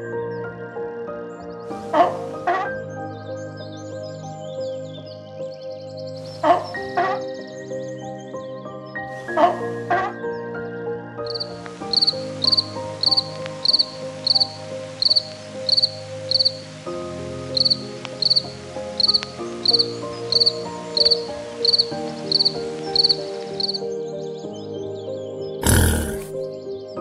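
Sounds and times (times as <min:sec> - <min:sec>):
soft background music: 0:00.0 - 0:27.0
crickets chirping: 0:11.3 - 0:16.6.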